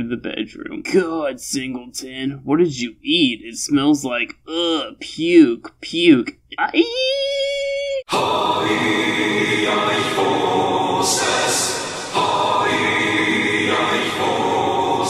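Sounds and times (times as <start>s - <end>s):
chorus of voices chanting: 8.1s - 15.0s.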